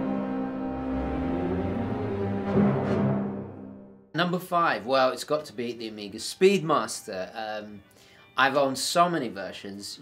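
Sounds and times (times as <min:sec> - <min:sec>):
ominous low chord music: 0:00.0 - 0:04.2.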